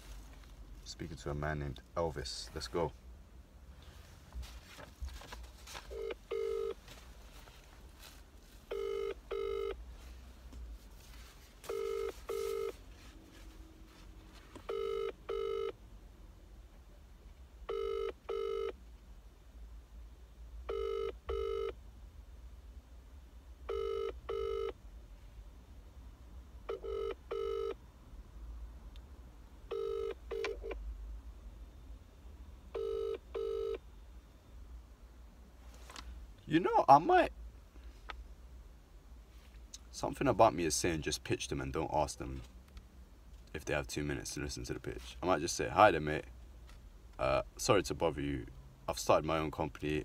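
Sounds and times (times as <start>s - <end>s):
phone ringing tone double ring: 5.9s - 6.8s, 8.7s - 9.8s, 11.7s - 12.8s, 14.7s - 15.8s, 17.7s - 18.8s, 20.7s - 21.7s, 23.7s - 24.7s, 26.7s - 27.8s, 29.7s - 30.7s, 32.8s - 33.8s.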